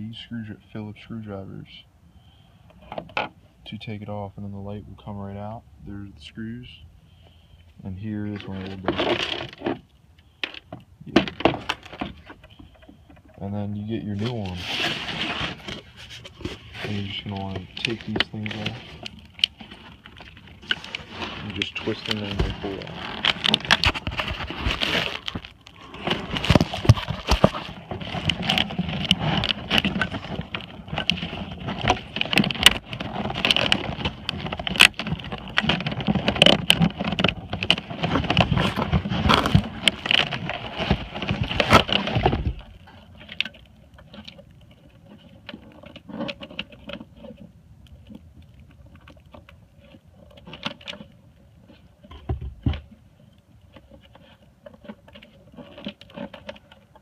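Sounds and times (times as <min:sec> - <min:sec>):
plastic parts clicking and rattling: 0:15.1 - 0:57.0.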